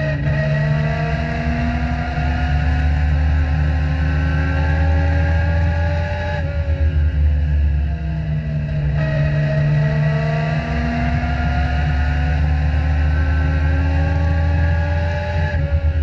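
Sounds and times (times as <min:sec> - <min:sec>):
race car engine at high revs: 0:00.0 - 0:16.0.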